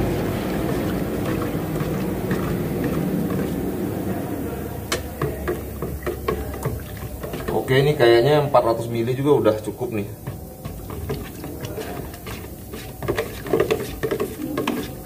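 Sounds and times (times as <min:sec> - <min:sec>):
light clicks of stirring: 0:04.9 - 0:07.7.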